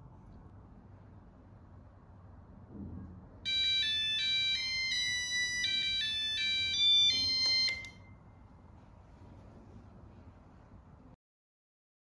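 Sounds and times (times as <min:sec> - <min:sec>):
beeping electronic alarm tune: 0:03.5 - 0:08.1.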